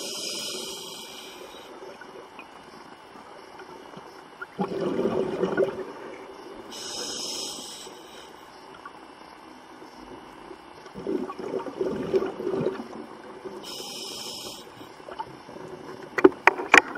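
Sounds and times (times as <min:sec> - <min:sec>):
regulator inhale hiss: 0:00.0 - 0:01.8, 0:06.6 - 0:08.6, 0:13.6 - 0:15.0
gurgle of exhaled bubbles: 0:04.5 - 0:06.3, 0:10.9 - 0:13.6.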